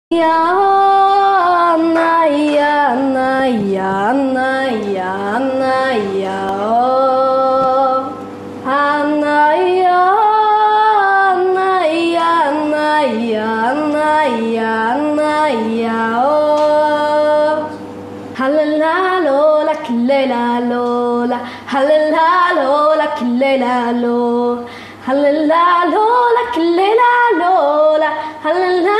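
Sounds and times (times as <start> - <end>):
woman singing long notes: 0.1 - 17.8.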